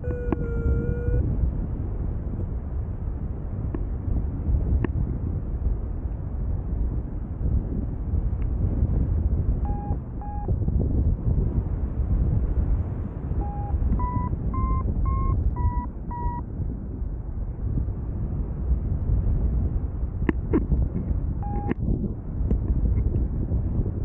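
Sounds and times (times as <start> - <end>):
variometer beeping: 0.0 - 1.2, 9.6 - 10.6, 13.4 - 16.4, 21.4 - 21.8
wind rushing over microphone: 0.0 - 24.0.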